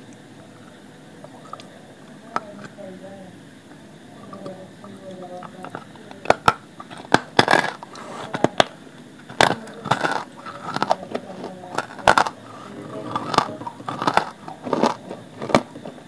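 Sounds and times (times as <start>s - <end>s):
chewing hard clay chunks: 5.4s - 16.0s
grinding crunches: 5.4s - 16.0s
sharp cracks between teeth: 6.4s - 7.8s, 9.3s - 11.0s, 13.2s - 15.8s.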